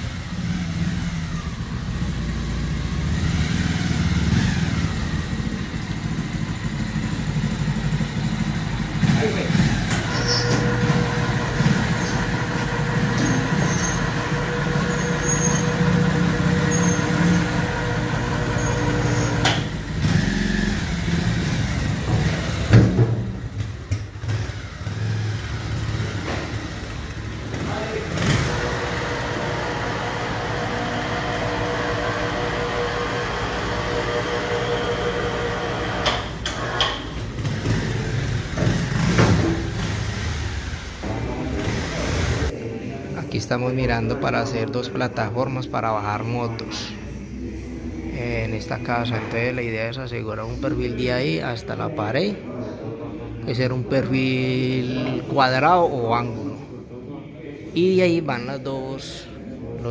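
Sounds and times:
motorcycle engine idling: 0:00.0 - 0:35.6.

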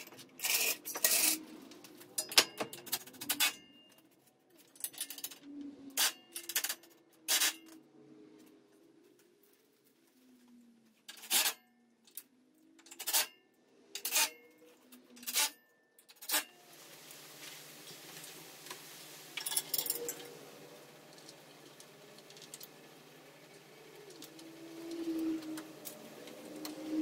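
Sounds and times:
metal parts clinking: 0:00.0 - 0:01.4, 0:04.6 - 0:07.8, 0:19.4 - 0:20.3
background hum and hiss: 0:16.1 - 0:27.0.

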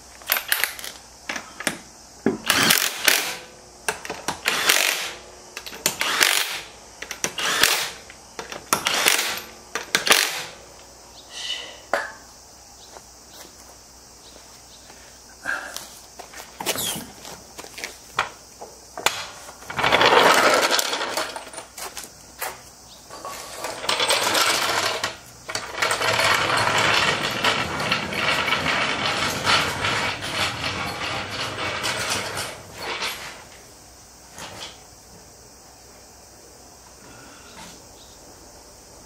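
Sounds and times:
floor jack rolling on concrete: 0:00.2 - 0:10.6, 0:16.2 - 0:33.7.

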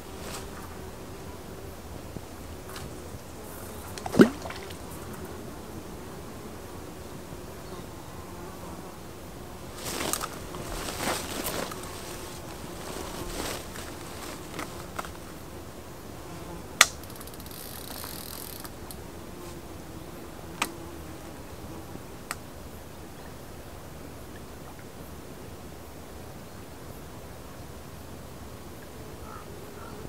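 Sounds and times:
insect buzzing: 0:00.0 - 0:22.8
river flowing: 0:01.7 - 0:05.1, 0:09.6 - 0:15.7.

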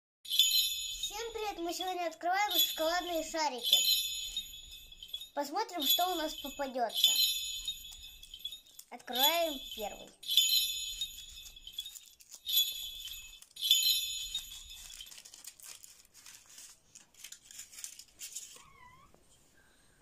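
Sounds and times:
sleigh bells jingling: 0:00.3 - 0:18.9
foil wrapper crinkling: 0:11.2 - 0:19.0.

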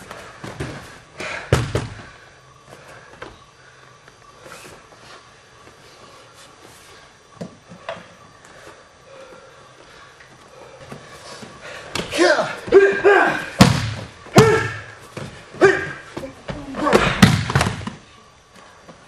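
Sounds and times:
body slapping onto mat: 0:01.5 - 0:02.0, 0:13.6 - 0:15.4, 0:16.2 - 0:18.0.

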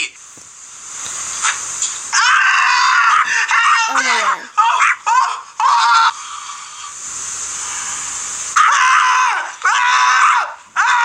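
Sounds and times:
steady hiss: 0:00.0 - 0:11.0
man screaming: 0:02.1 - 0:06.1, 0:08.6 - 0:11.0.

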